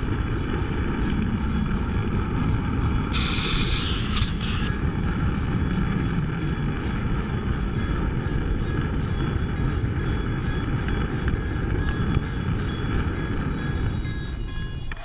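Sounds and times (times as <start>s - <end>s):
model train wheels rumbling on rails: 3.1s - 4.7s.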